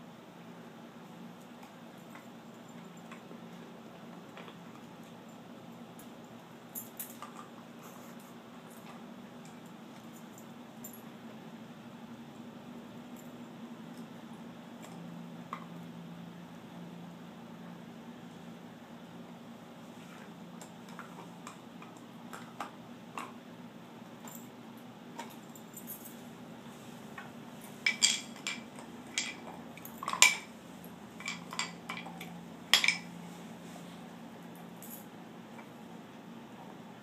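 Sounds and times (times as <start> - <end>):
low steady hum: 0.0 - 37.0
sharp clinks and clacks: 27.8 - 30.5, 31.2 - 33.1.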